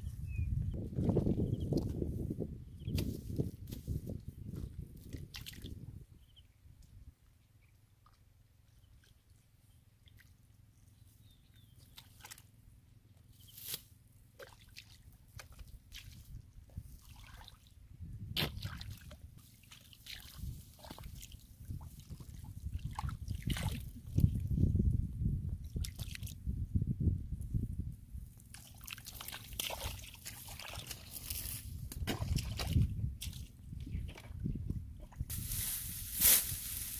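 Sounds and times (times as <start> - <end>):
wet squelches in mud: 4.6 - 5.8, 11.7 - 12.5, 18.4 - 24.2, 25.7 - 26.4, 28.4 - 34.4
sloshing in muddy water: 5.0 - 5.8, 11.7 - 12.6, 14.3 - 17.8, 18.4 - 24.2, 28.5 - 34.4.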